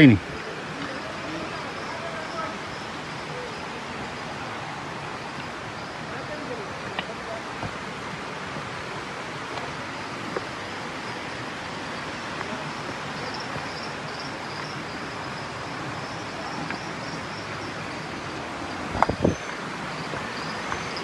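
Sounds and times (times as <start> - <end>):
insects chirping: 0.0 - 21.0
steady rushing noise: 0.0 - 21.0
faint clicks: 6.8 - 7.8.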